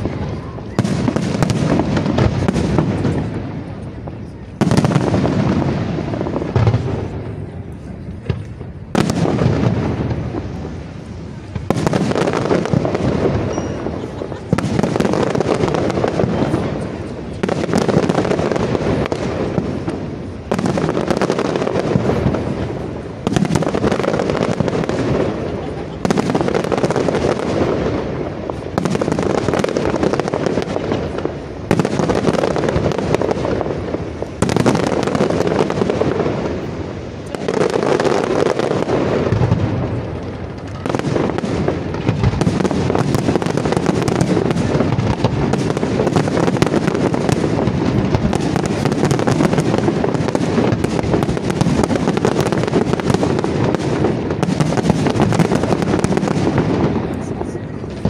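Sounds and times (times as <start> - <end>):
fireworks bursting and crackling: 0.0 - 58.0.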